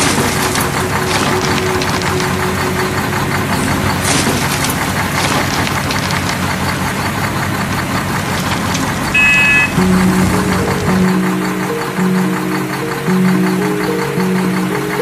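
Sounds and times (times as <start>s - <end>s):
diesel engine knocking idle: 0.0s - 15.0s
high horn-like tone: 9.2s - 9.8s.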